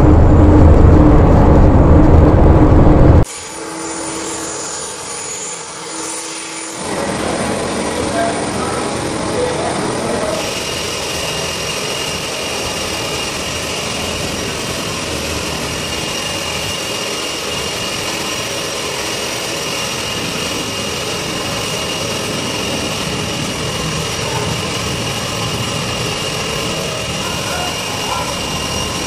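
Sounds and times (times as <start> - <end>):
jet turbine whine: 0.0 - 29.0.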